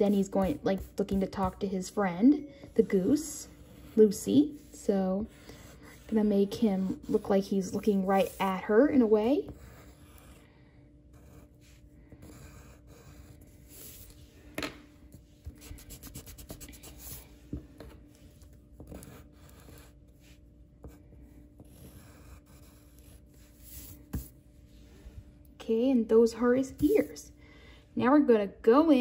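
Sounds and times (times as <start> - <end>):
pencil scratching on paper: 0.0 - 10.5, 11.1 - 14.3, 15.2 - 17.2, 18.1 - 24.3.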